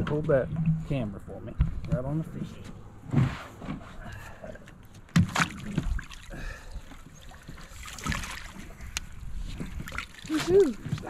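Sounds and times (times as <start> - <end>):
water splashing: 5.1 - 11.0.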